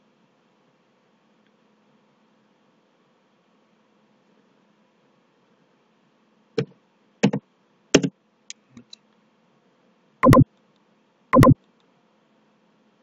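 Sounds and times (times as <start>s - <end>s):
keyboard keystrokes: 10.2s - 10.4s, 11.4s - 11.6s
mouse button clicks: 10.2s - 10.4s, 11.4s - 11.6s.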